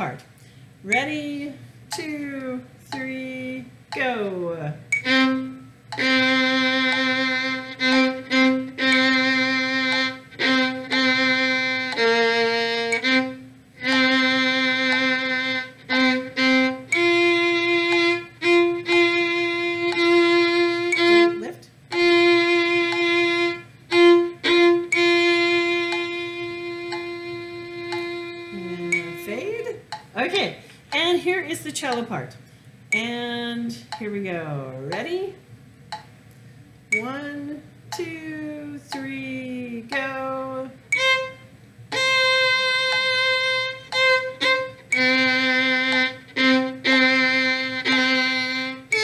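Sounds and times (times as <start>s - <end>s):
viola playing sustained bowed notes: 5.0s - 29.4s, 40.9s - 49.0s.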